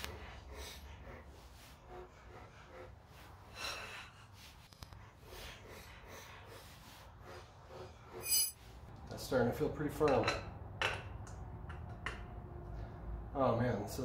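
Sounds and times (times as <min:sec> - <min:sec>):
man breathing heavily: 0:00.0 - 0:08.3.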